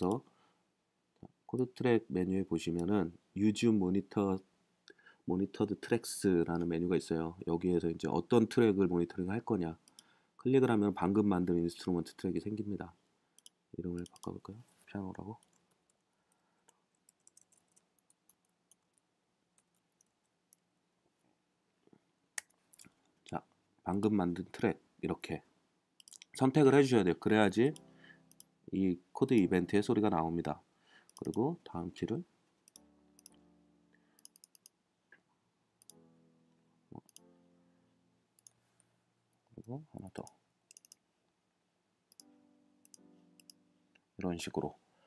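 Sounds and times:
mouse clicks: 13.4 - 14.4, 26.0 - 26.3, 31.1 - 31.4, 32.6 - 33.4, 34.2 - 34.8, 35.8 - 36.0, 37.0 - 37.3, 38.4 - 38.6, 40.2 - 41.0, 42.0 - 43.6
faint piano chords: 32.8 - 34.1, 35.9 - 38.3, 42.2 - 44.0.

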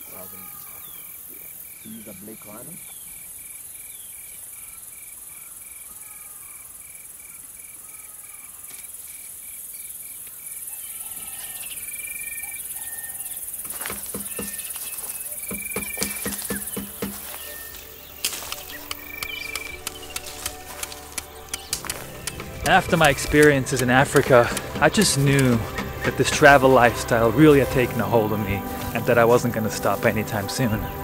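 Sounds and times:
crickets buzzing: 0.0 - 31.0
insect chirping: 0.0 - 31.0
sharp knocks: 13.9 - 14.7, 15.4 - 17.2.

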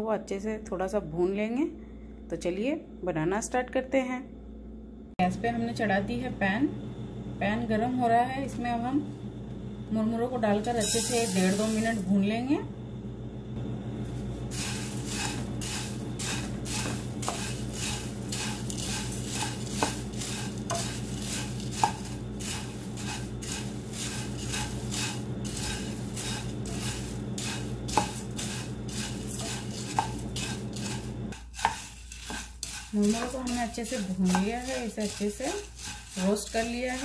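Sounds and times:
steady low hum: 0.0 - 37.0
spatula scraping puffed rice: 14.5 - 37.0
spatula knocking against pan: 21.7 - 22.2.

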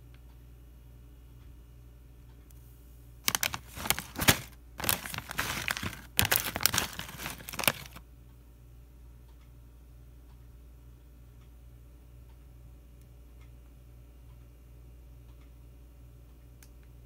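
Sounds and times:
plastic chip bag crinkling: 3.3 - 8.0.

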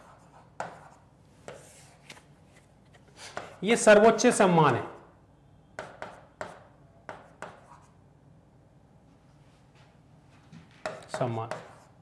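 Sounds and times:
marker writing on whiteboard: 0.0 - 5.1, 5.8 - 8.0, 10.8 - 12.0.

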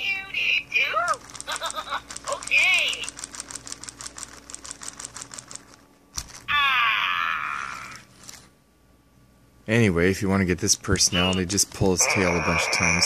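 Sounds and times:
toy motor and gears clicking: 1.0 - 6.4, 11.2 - 11.6.

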